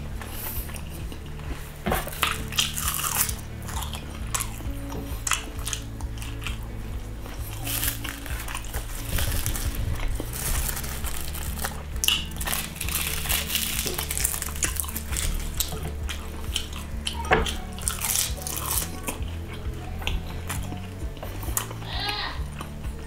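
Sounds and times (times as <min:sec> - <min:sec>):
background music: 0:00.0 - 0:23.0
wet chewing and smacking: 0:00.0 - 0:23.0
seaweed sheets crackling: 0:00.2 - 0:22.8.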